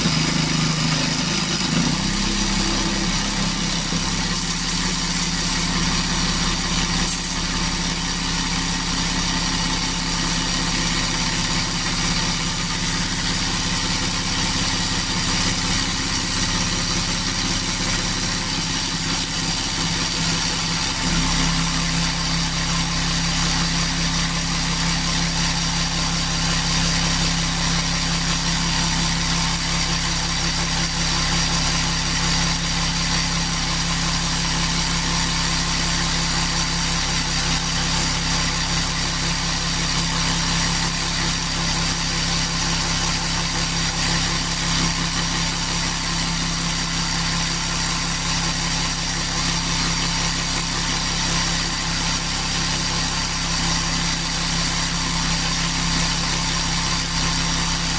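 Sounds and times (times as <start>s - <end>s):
reciprocating saw cutting: 0.0s - 10.5s.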